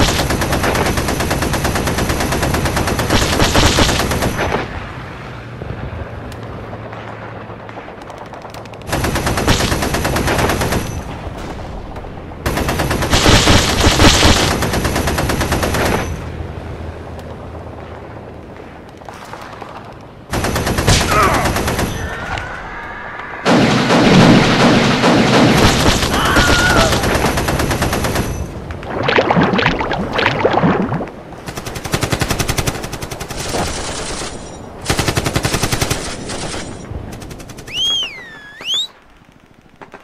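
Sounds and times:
machine-gun fire: 0.0 - 4.6, 7.6 - 11.2, 12.4 - 16.2, 20.3 - 22.2, 23.5 - 28.5, 34.8 - 37.7
men crying out: 26.1 - 27.2.

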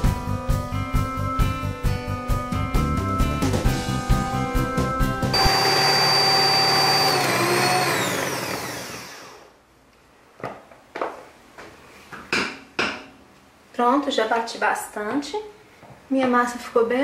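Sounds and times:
background music: 0.0 - 5.4
stand mixer whining: 5.4 - 9.5.

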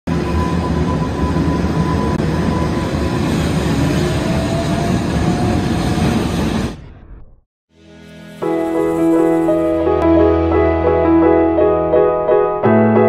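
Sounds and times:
train wheels rumbling on rails: 0.1 - 6.8
high rising whine: 0.1 - 10.6.

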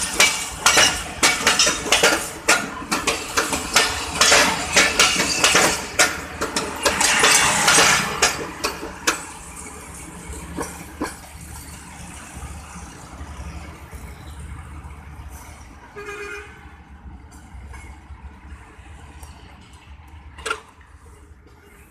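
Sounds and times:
train wheels clattering over rail joints: 0.0 - 12.4
low train rumble: 0.0 - 21.9.

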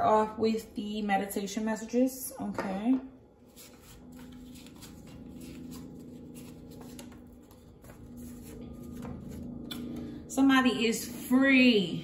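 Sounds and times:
faint steady hum: 0.0 - 12.0
cards being shuffled: 3.5 - 10.0.

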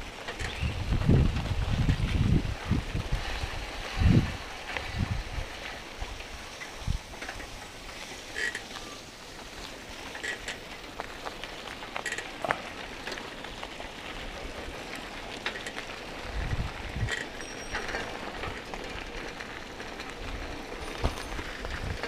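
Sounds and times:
wind rumble on microphone: 0.0 - 7.7, 14.0 - 17.4, 18.2 - 22.0
bicycle rattling and clicking: 0.0 - 22.0
tyre and road noise: 0.0 - 22.0.

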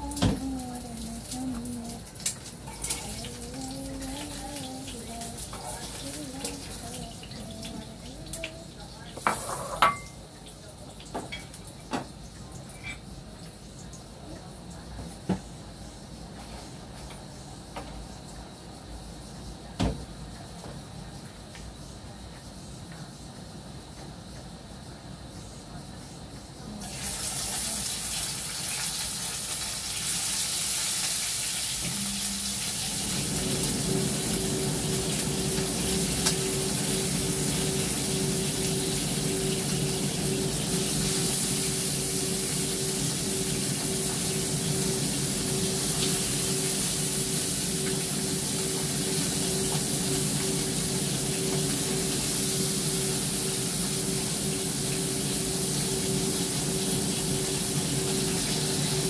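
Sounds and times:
range hood fan air rush: 31.4 - 59.0
low motor hum: 31.8 - 59.0.

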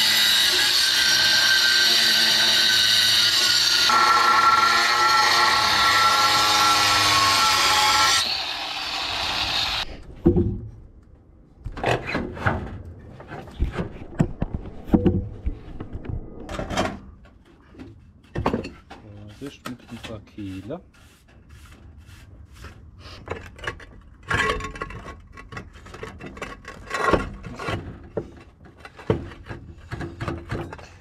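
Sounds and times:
angle grinder cutting tile: 0.0 - 9.9.

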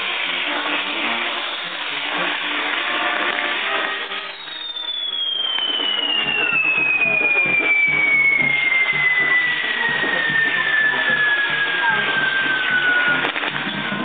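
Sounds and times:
fireworks sizzling and crackling: 0.0 - 14.0
long falling whistle: 0.8 - 14.0.

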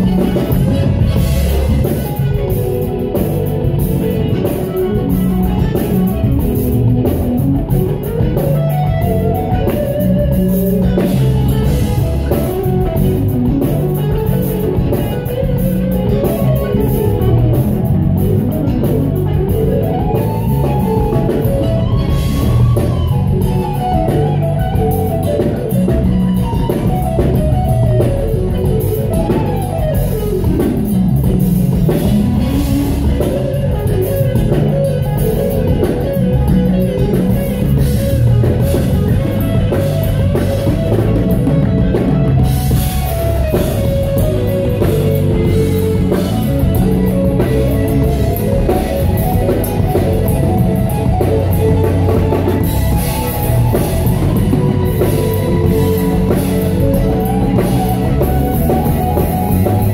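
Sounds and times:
live band playing soul music: 0.0 - 59.9.

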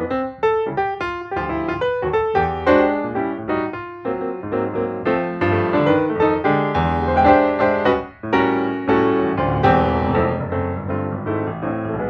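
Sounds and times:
piano music: 0.0 - 12.0.

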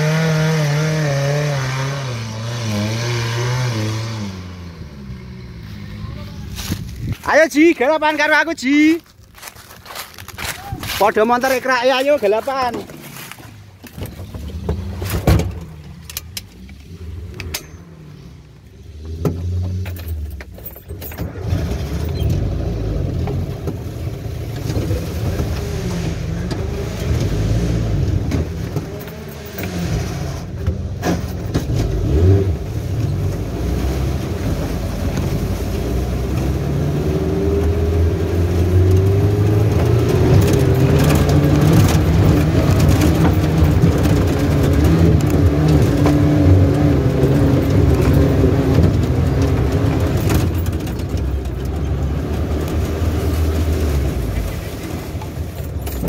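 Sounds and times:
off-road vehicle engine under load: 0.0 - 56.0
body knocks and rattles: 6.5 - 16.6, 39.4 - 56.0.

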